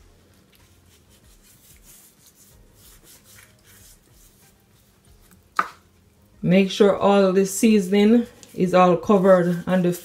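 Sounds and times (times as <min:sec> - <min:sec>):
hands rubbing fish skin: 0:00.4 - 0:05.8.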